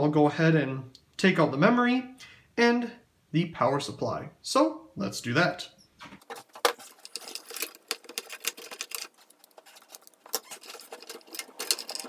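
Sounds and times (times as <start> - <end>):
clicks and rattles of computer parts: 6.2 - 12.0.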